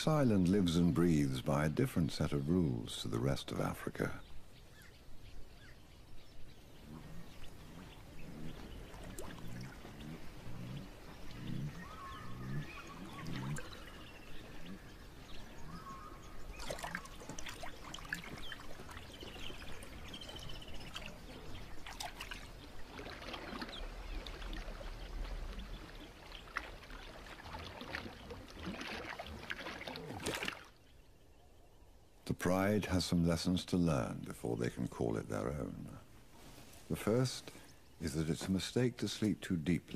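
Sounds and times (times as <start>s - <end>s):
short bird calls: 4.2s - 28.4s
water trickling and splashing: 5.5s - 30.9s.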